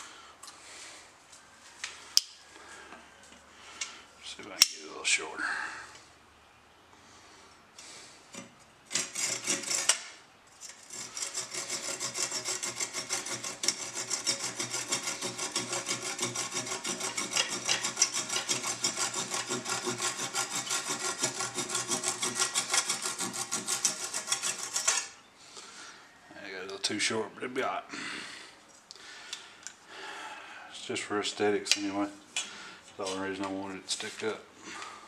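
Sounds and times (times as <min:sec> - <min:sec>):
hand saw cutting wood: 0:08.4 - 0:25.2.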